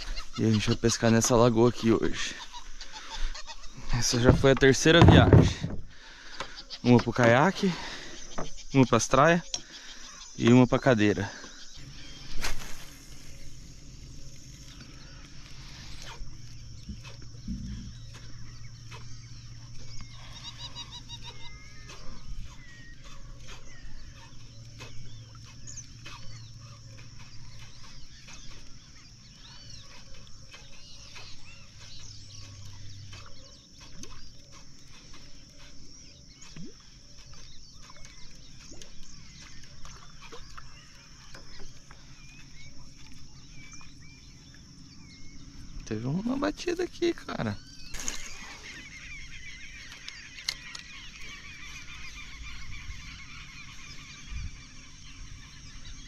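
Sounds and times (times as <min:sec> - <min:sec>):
low hum: 0:11.6 - 0:46.3
animal chirps and calls: 0:14.8 - 0:44.0.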